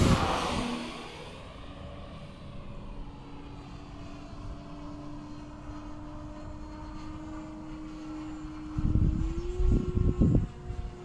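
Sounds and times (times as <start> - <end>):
model airplane motor droning: 0.0 - 11.0.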